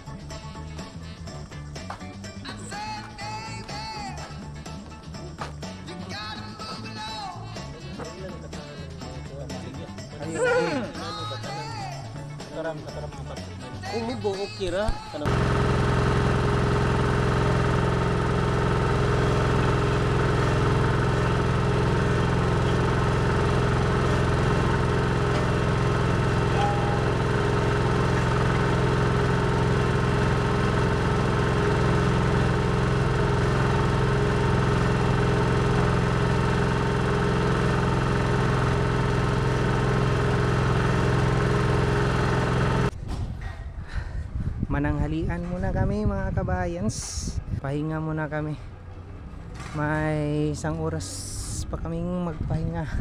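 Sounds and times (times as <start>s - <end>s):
paving machine engine drone: 15.2s - 43.0s, 48.7s - 50.4s.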